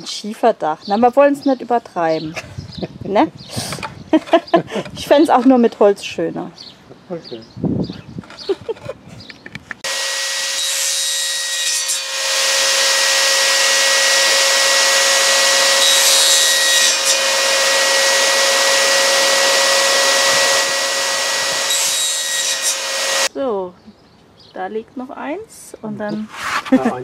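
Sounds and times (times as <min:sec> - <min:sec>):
saw blade cutting cane: 0:09.8 - 0:23.3
table saw motor whine: 0:09.8 - 0:23.3.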